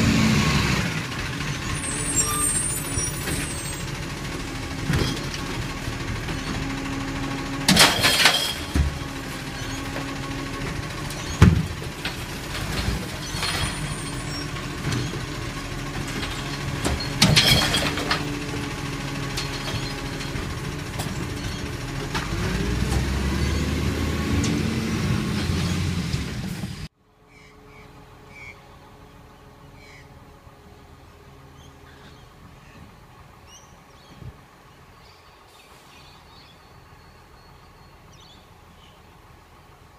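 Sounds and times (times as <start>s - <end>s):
truck diesel engine running: 0.0s - 26.9s
distant truck engine: 0.0s - 39.9s.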